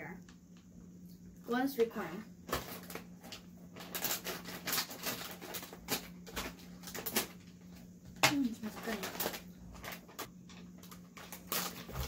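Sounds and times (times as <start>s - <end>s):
plastic snack bag crinkling: 2.4s - 12.0s.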